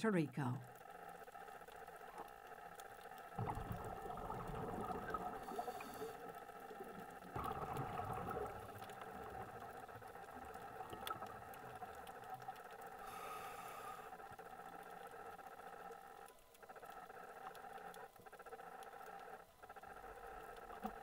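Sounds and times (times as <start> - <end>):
faint clicks: 0.6 - 21.0
underwater bubbling gurgle: 0.7 - 21.0.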